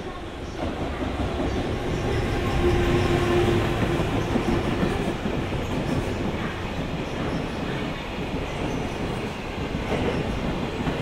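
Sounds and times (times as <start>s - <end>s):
train wheels clattering on rails: 0.4s - 11.0s.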